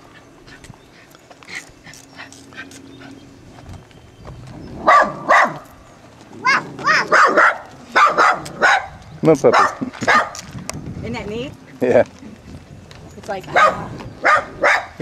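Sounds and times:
dog barking: 0:04.8 - 0:05.6, 0:06.4 - 0:10.4, 0:13.5 - 0:15.0.

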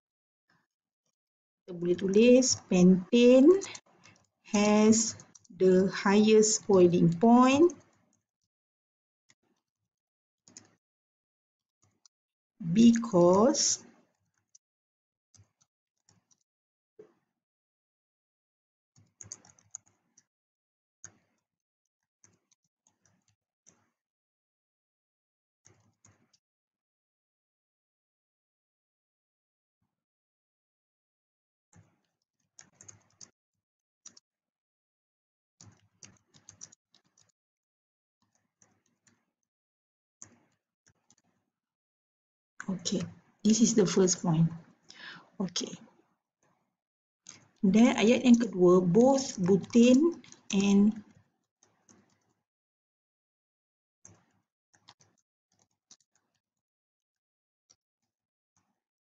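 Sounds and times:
typing on computer keyboard: 0:19.1 - 0:20.2, 0:31.8 - 0:33.4, 0:35.6 - 0:37.4, 0:47.3 - 0:52.3, 0:54.0 - 0:56.4
computer keyboard keystrokes: 0:19.2 - 0:19.9, 0:32.6 - 0:33.3, 0:35.6 - 0:37.3, 0:54.1 - 0:56.3.

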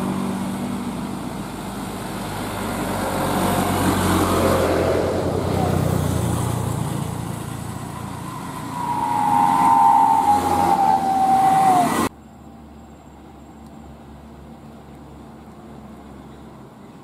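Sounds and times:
pickup truck passing with whine: 0:00.0 - 0:12.1
distant traffic hum: 0:00.0 - 0:17.0.

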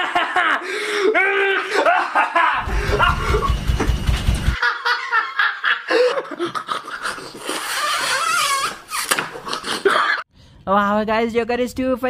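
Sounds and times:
villain laughter: 0:00.0 - 0:03.5, 0:04.6 - 0:08.3, 0:09.4 - 0:10.2.

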